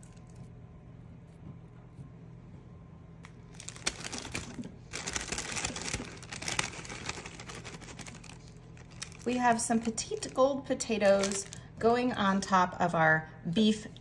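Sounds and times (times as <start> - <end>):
plastic mesh bag rustling: 3.3 - 11.6.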